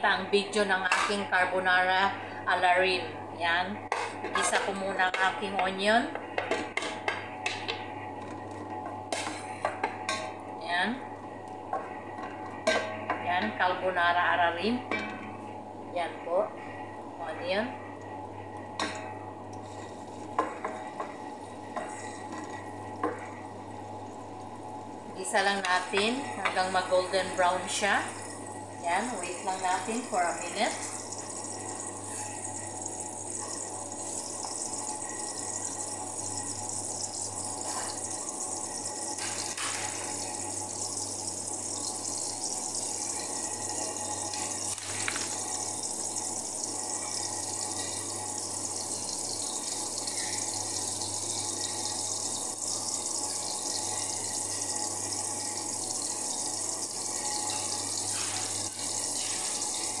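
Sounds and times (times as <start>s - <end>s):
onions sizzling in oil: 18.6s - 60.0s.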